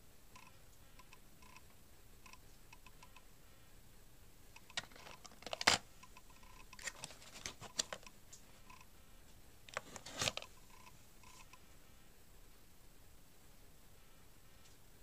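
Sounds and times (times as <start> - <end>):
cable rustling: 9.7 - 10.5.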